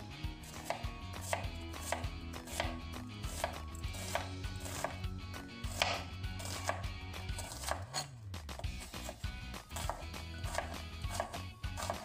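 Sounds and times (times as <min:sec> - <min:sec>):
knife chopping on cutting board: 0:00.4 - 0:12.0.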